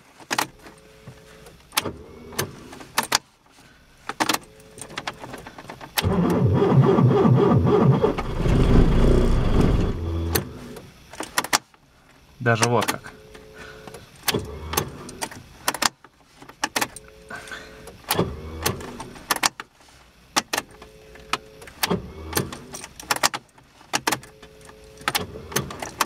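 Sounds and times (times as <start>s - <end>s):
car starter whirring: 4.1s - 11.5s, 16.6s - 19.6s, 20.3s - 26.0s.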